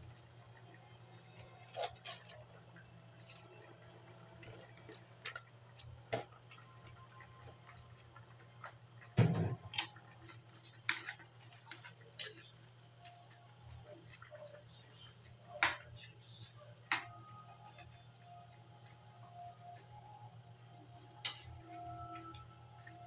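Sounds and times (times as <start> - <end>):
leaves stirred in a metal wok: 10.2 - 14.9.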